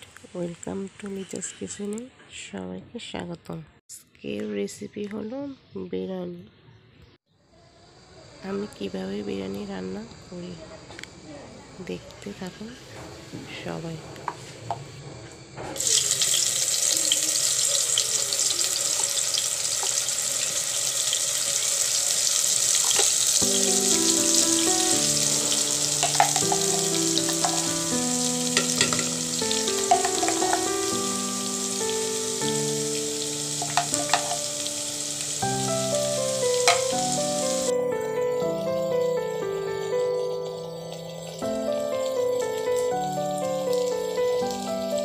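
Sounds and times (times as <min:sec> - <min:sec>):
food sizzling in hot oil: 0:15.8 - 0:45.0
plucked melody music: 0:23.4 - 0:45.0.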